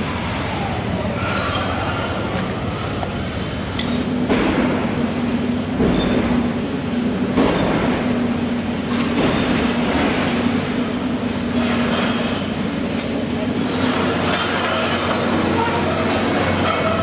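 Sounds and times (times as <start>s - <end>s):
high metallic squeals and scraping: 0.0s - 2.6s, 11.4s - 17.0s
diesel engine hum: 0.0s - 17.0s.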